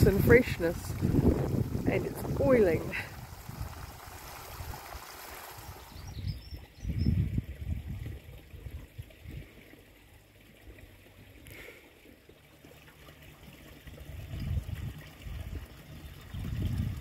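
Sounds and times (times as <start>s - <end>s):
trickling stream water: 0.0s - 17.0s.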